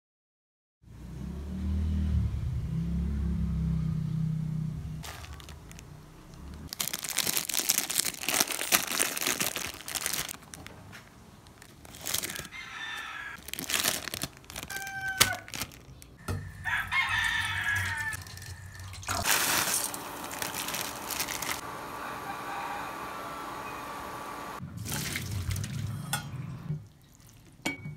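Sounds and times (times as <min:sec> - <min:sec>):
plastic wrapper crinkling and tearing: 0:05.0 - 0:16.2, 0:17.2 - 0:21.6
rooster crowing: 0:12.2 - 0:13.4, 0:14.6 - 0:15.5, 0:16.2 - 0:19.3, 0:20.6 - 0:24.4.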